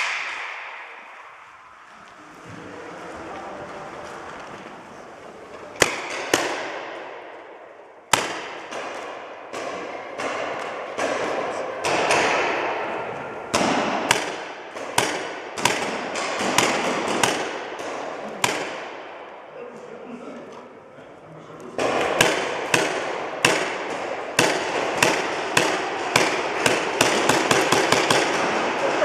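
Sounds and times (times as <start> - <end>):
paintball marker shots echoing: 0.0 - 1.4, 5.8 - 19.5, 21.8 - 29.0.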